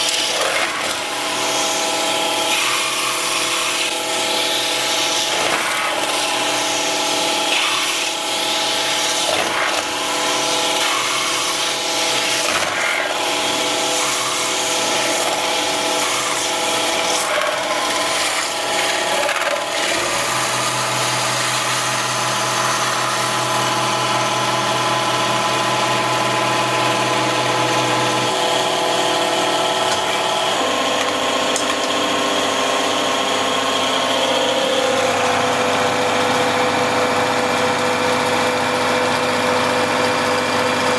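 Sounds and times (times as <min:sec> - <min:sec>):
lathe whine: 0:00.0 - 0:40.9.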